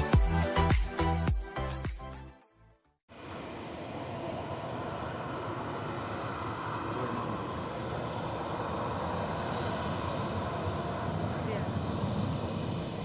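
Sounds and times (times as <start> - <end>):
distant jet engines running: 3.1 - 13.0.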